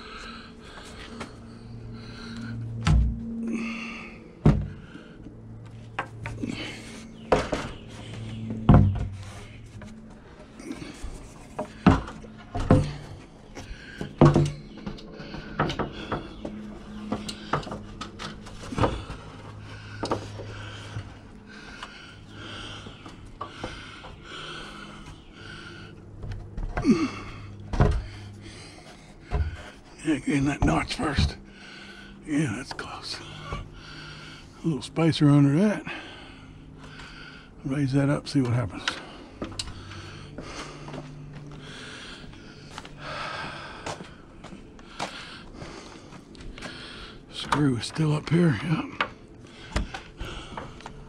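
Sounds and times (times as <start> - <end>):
steady low hum: 0.0 - 51.0
wooden board knocks and bumps: 8.7 - 9.2.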